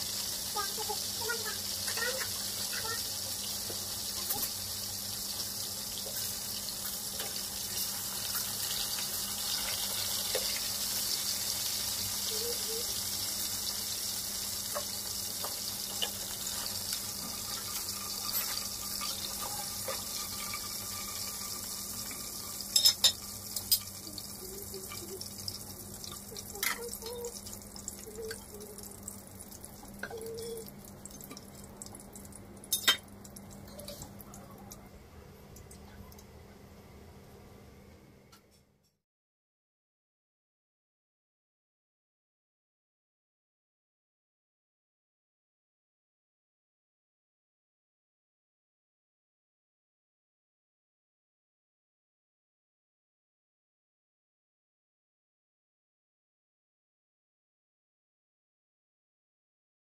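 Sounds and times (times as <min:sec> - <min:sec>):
fish sizzling in hot oil: 0:00.0 - 0:33.9.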